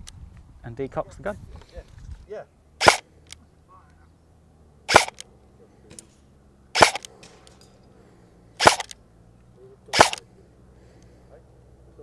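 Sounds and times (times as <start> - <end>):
airsoft rifle shots: 2.8 - 3.1, 4.9 - 5.3, 6.7 - 7.5, 8.6 - 9.0, 9.9 - 10.3.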